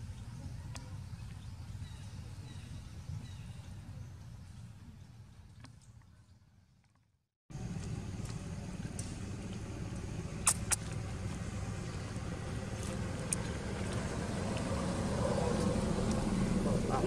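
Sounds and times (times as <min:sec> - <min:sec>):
vehicle engine rumbling: 0:07.5 - 0:17.0.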